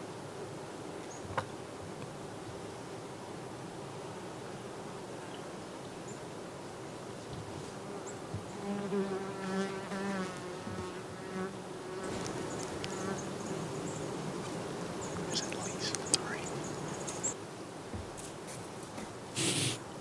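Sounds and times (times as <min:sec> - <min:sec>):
flying insect buzzing: 0:08.0 - 0:17.4, 0:19.4 - 0:19.8.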